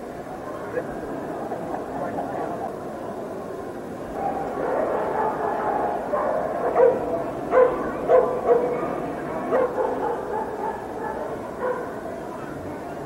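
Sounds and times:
murmur of crowd: 0:00.0 - 0:13.0
dogs barking: 0:04.2 - 0:12.6.

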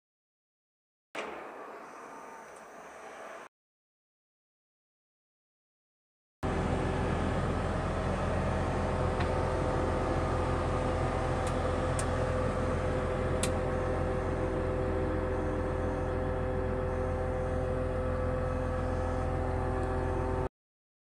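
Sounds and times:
diesel engine running: 0:06.4 - 0:20.5.

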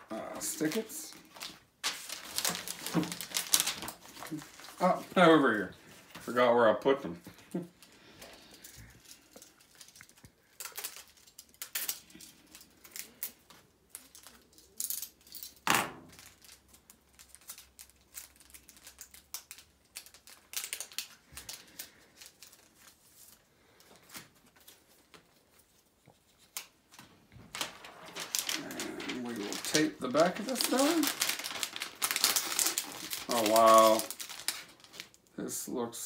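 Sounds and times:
plastic bags crinkling: 0:00.0 - 0:25.5, 0:26.5 - 0:35.4.

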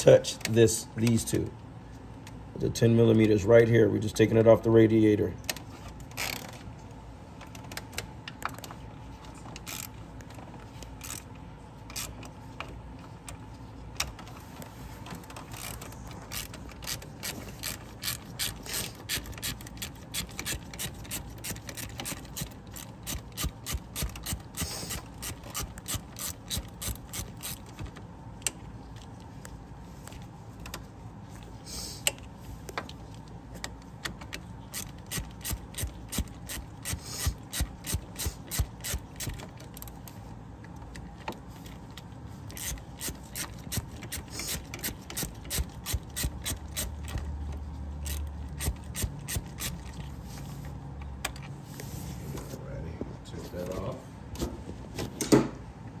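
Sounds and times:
hand ratchet clicking: 0:09.6 - 0:09.9, 0:15.2 - 0:28.6, 0:34.7 - 0:39.9, 0:42.5 - 0:47.3, 0:48.0 - 0:50.0.

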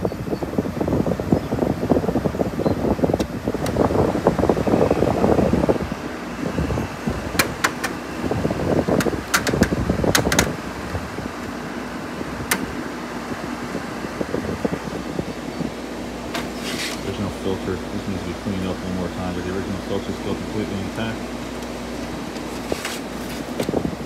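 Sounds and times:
air conditioner running: 0:00.0 - 0:24.0
grille rattling: 0:03.4 - 0:13.9
rustle: 0:16.4 - 0:17.0, 0:22.3 - 0:23.6.

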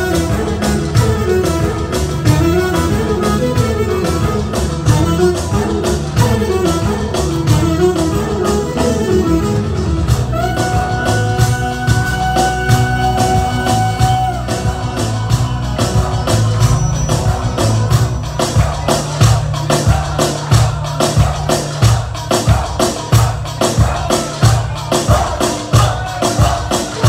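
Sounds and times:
clarinet melody: 0:00.0 - 0:18.4
bass: 0:00.0 - 0:27.0
quick steady drum beat: 0:10.1 - 0:27.0.

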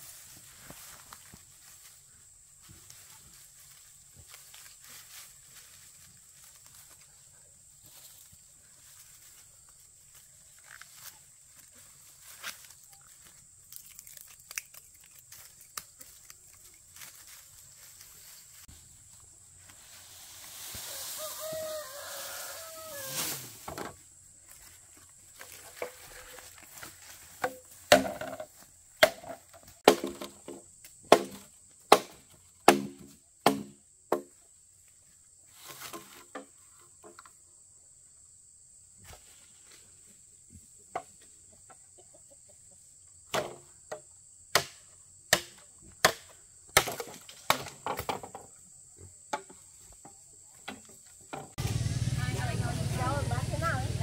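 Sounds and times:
high insect trill: 0:00.0 - 0:29.5.

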